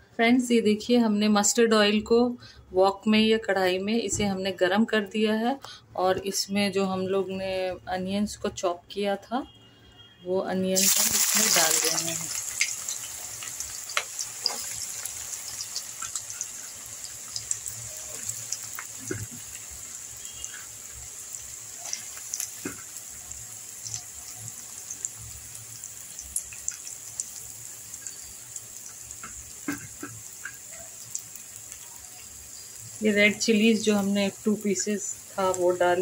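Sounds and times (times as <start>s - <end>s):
onions sizzling in oil: 10.7s - 36.0s
crackles and pops: 10.8s - 25.3s, 26.1s - 34.4s.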